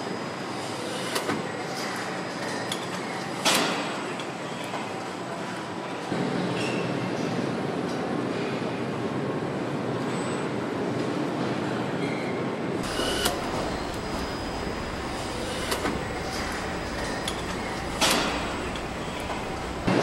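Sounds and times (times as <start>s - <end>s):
steady mechanical hum: 0.0s - 20.0s
metallic clicks and clanks: 12.8s - 19.9s.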